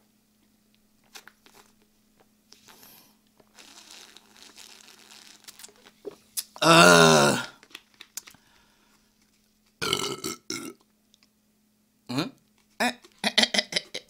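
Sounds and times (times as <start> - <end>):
bottle crinkling and drinking: 3.4 - 6.6.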